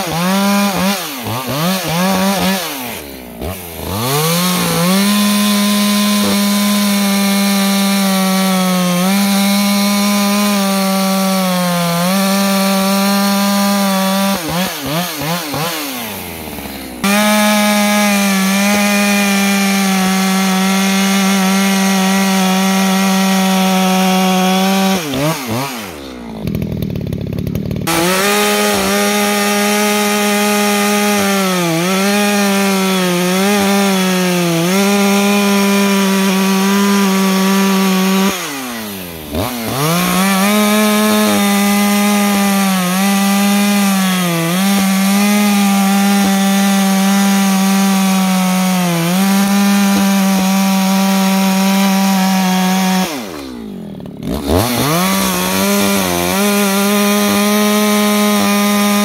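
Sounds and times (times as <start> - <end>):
chainsaw cutting wood: 0.0 - 59.0.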